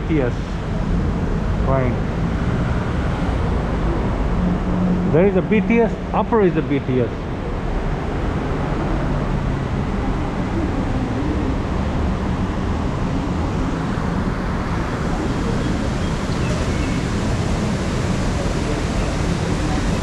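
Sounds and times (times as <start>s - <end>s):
city street traffic hum: 0.0s - 20.0s
faint voices: 5.1s - 7.2s.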